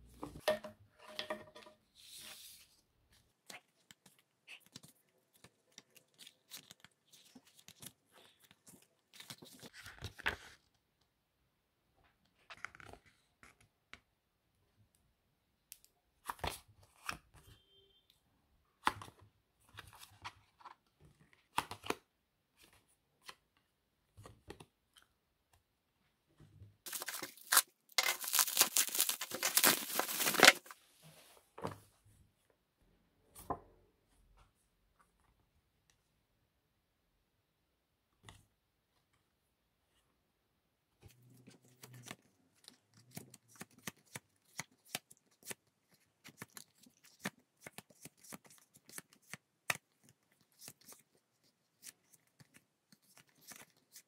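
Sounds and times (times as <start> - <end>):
packaging clicks and rustles: 26.9 - 30.7
packaging tearing and crinkling: 26.9 - 30.7.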